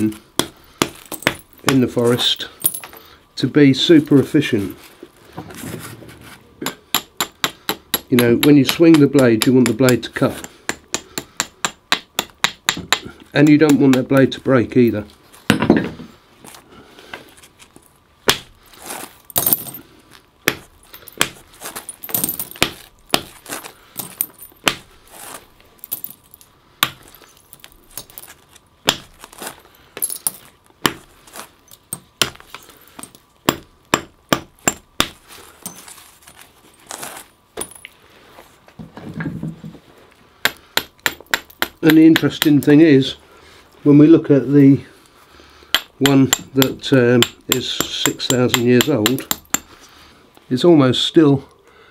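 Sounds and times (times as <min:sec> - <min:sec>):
antler hammer striking flint: 0:00.0 - 0:03.0, 0:06.6 - 0:14.4, 0:18.2 - 0:19.8, 0:20.4 - 0:38.0, 0:40.4 - 0:42.8, 0:45.7 - 0:49.8.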